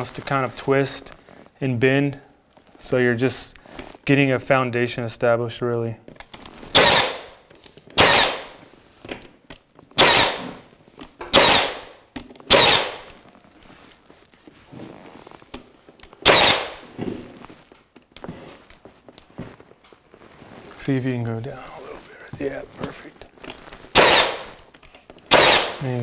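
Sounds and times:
nail gun shots: 6.8s - 7.3s, 8.0s - 8.5s, 10.0s - 10.5s, 11.3s - 13.1s, 16.2s - 16.8s, 23.9s - 24.5s, 25.3s - 25.9s.

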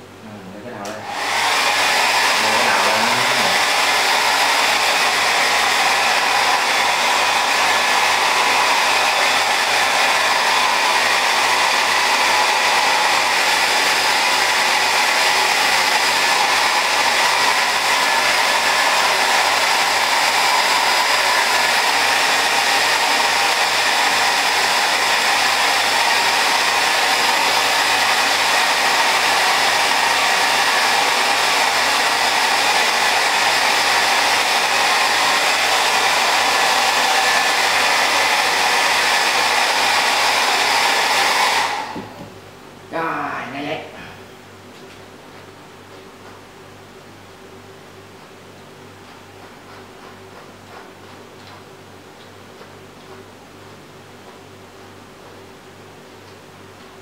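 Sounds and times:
hair dryer blowing: 0.6s - 43.9s.

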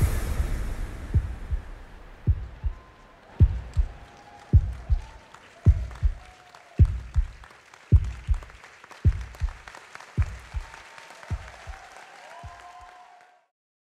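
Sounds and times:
music with heavy bass beat: 0.0s - 2.7s
audience applause: 2.2s - 13.5s.

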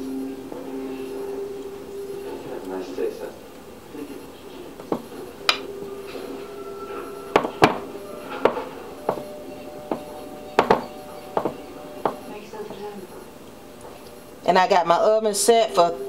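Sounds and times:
quiet background music: 0.0s - 16.0s
baking dish knocking on countertop: 9.9s - 12.2s.

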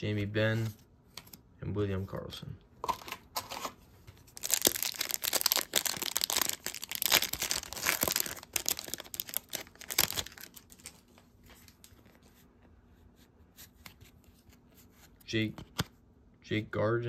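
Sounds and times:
cards rustling: 2.9s - 12.4s
plastic wrapper crinkling: 4.3s - 12.2s.

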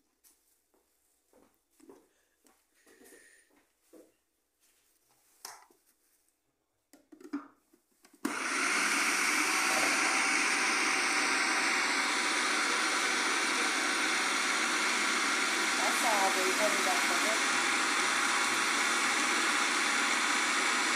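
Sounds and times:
food processor grinding: 8.2s - 20.9s.

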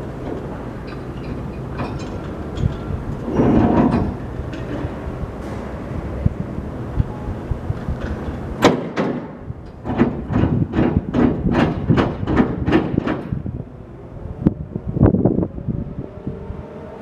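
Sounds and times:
low engine rumble: 0.0s - 8.7s, 9.3s - 17.0s
sharp knocks: 8.6s - 13.4s.

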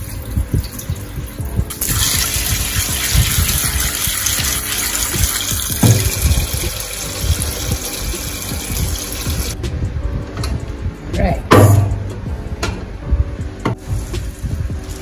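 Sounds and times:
tap water running: 0.0s - 9.6s.

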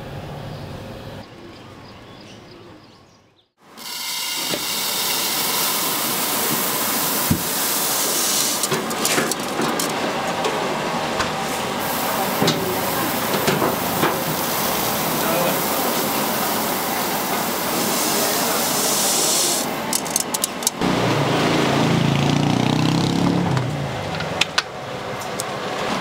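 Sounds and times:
hot oil sizzling in wok: 3.8s - 8.7s, 11.8s - 19.7s.

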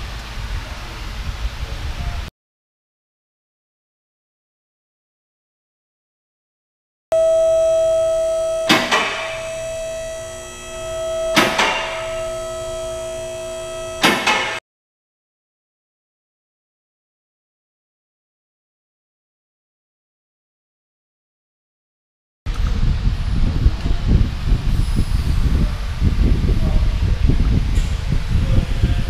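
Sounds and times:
steady rumbling noise with hiss: 0.0s - 2.3s, 22.5s - 29.0s
hydraulic pump whine: 7.2s - 14.6s
safety locks clacking: 7.4s - 14.6s.

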